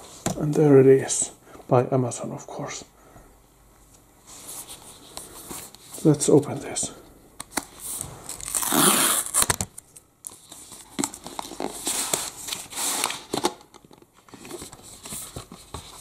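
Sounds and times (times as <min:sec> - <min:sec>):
cardboard crinkling: 0:07.8 - 0:16.0
cardboard box tearing: 0:08.4 - 0:09.6.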